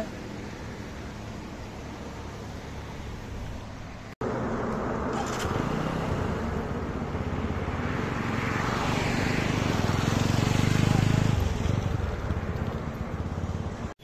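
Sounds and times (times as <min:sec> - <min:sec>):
motorcycle engine at low revs: 0:00.0 - 0:14.0
road ambience: 0:00.0 - 0:14.0.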